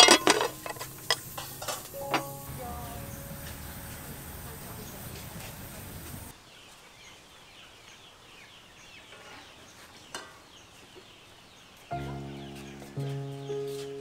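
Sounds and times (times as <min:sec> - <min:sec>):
background music held notes: 0:00.0 - 0:06.3, 0:11.9 - 0:14.0
small birds chirping: 0:00.0 - 0:14.0.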